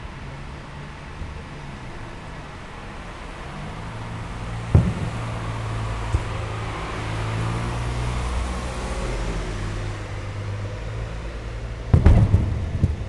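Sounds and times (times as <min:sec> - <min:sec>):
fireworks rumble: 0:03.4 - 0:13.0
firework shell booming: 0:04.7 - 0:06.4, 0:11.9 - 0:13.0.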